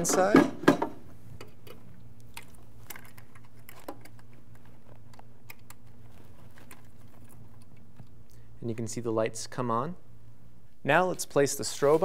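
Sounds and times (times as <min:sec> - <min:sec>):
steady low hum: 0:00.0 - 0:12.0
wire connectors clicking onto terminals: 0:01.4 - 0:08.4.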